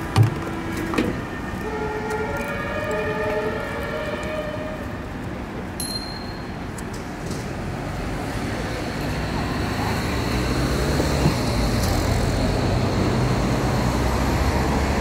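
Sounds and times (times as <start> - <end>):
street traffic noise: 0.0 - 15.0
two-tone emergency siren: 1.6 - 4.8.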